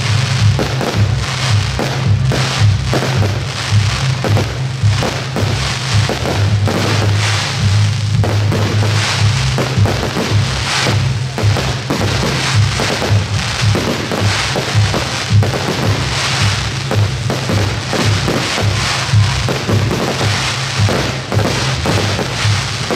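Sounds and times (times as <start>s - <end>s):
fireworks crackling: 0.0s - 22.9s
music with low beat: 0.0s - 22.9s.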